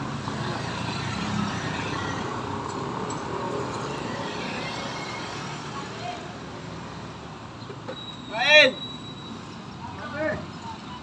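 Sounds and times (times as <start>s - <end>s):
motorcycles passing: 0.0s - 7.6s
road noise: 0.0s - 11.0s.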